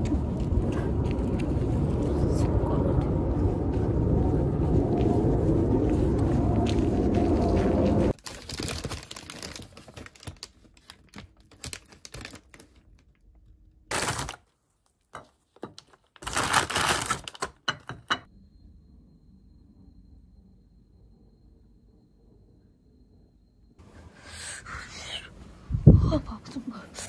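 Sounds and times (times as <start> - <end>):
crinkling and rustling: 6.0 - 17.6.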